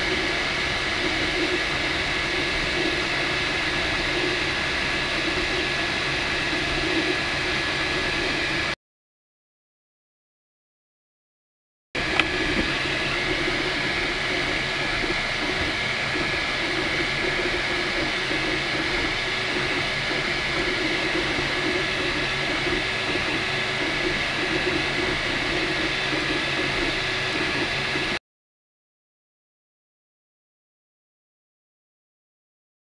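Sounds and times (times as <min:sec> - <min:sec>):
stepper motor hum: 0:12.0 - 0:28.2
three d printer whirring: 0:12.0 - 0:28.2.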